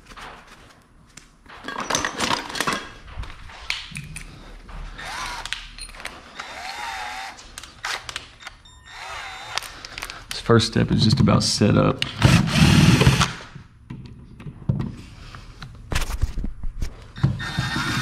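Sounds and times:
hand tools clinking and rattling: 0:01.6 - 0:03.2, 0:03.9 - 0:06.2.

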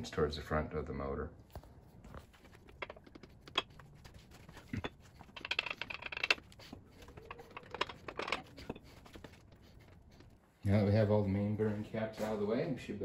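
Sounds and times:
metal clicks and scrapes: 0:02.2 - 0:10.4.

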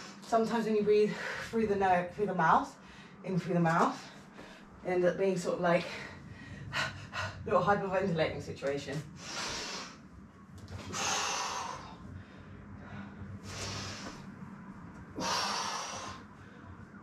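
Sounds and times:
woman breathing hard: 0:09.2 - 0:10.1, 0:10.8 - 0:14.4, 0:15.1 - 0:17.0.

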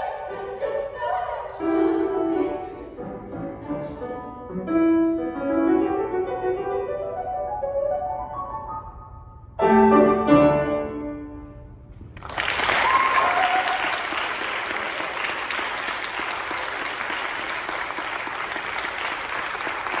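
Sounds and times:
piano chord ringing: 0:04.6 - 0:11.9
audience applause: 0:12.2 - 0:20.0.

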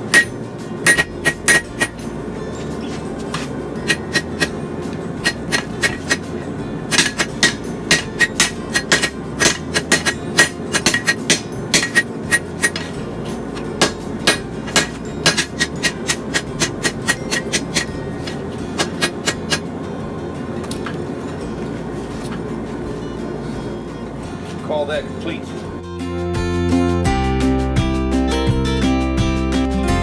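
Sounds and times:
hammer striking steel on anvil: 0:00.0 - 0:02.2, 0:02.9 - 0:04.6, 0:05.2 - 0:19.7.

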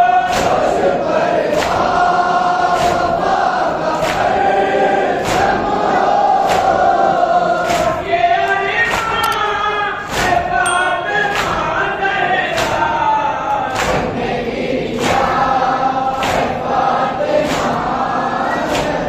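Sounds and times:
men chanting a lament: 0:00.0 - 0:19.0
hands slapping chests: 0:01.5 - 0:01.9, 0:02.6 - 0:03.3, 0:03.9 - 0:04.5, 0:05.1 - 0:07.0, 0:07.6 - 0:08.1, 0:08.8 - 0:10.5, 0:11.2 - 0:11.7, 0:12.6 - 0:12.9, 0:13.6 - 0:14.2, 0:14.9 - 0:15.5, 0:16.1 - 0:16.7, 0:17.4 - 0:18.0, 0:18.6 - 0:19.0.

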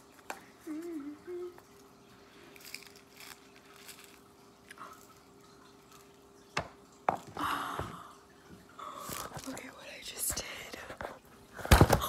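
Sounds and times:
sprinkles pouring: 0:01.6 - 0:07.0.

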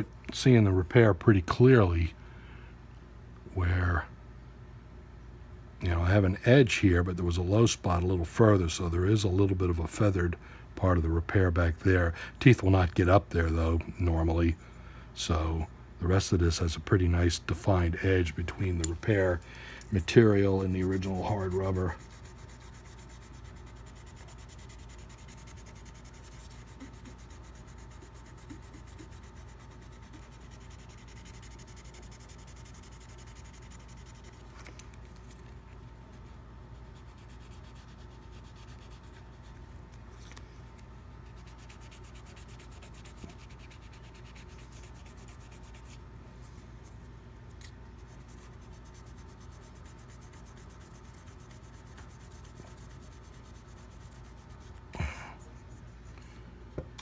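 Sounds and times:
steady low hum: 0:00.0 - 0:57.0
sandpaper sanding rubber: 0:20.3 - 0:34.5, 0:36.8 - 0:39.3, 0:41.2 - 0:46.0, 0:48.0 - 0:54.8.

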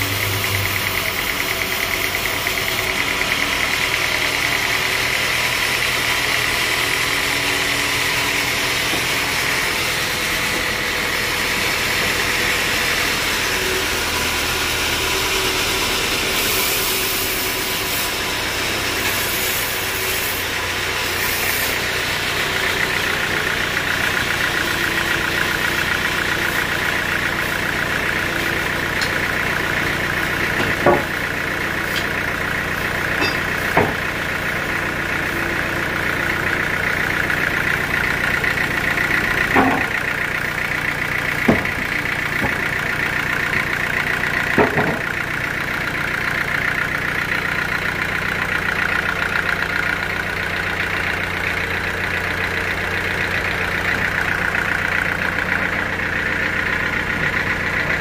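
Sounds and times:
band saw humming and whining: 0:00.0 - 0:58.0
wood knocks: 0:30.6 - 0:31.1, 0:33.2 - 0:34.0, 0:39.5 - 0:40.0, 0:41.5 - 0:41.8.

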